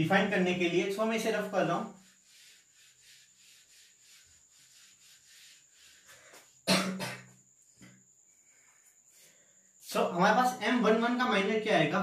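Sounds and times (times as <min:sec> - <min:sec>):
duster rubbing on whiteboard: 0:00.2 - 0:06.6.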